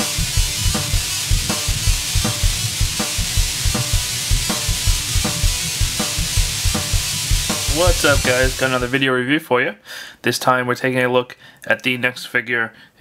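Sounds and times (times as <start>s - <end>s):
intro music with driving drum beat: 0.0s - 9.0s
steady hiss: 0.0s - 9.0s.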